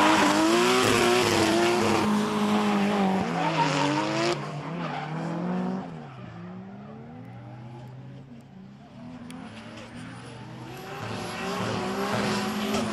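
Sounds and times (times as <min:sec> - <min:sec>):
car engine revving hard: 0:00.0 - 0:04.4, 0:10.6 - 0:12.9.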